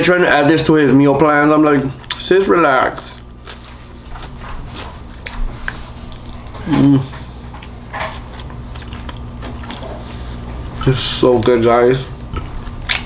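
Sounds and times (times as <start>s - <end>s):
person chewing food: 3.0s - 10.9s, 12.1s - 13.0s
person humming: 6.6s - 7.2s.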